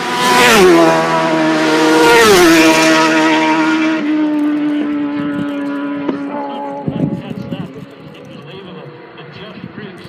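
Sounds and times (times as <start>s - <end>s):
motorbike passing at full speed: 0.0s - 10.0s.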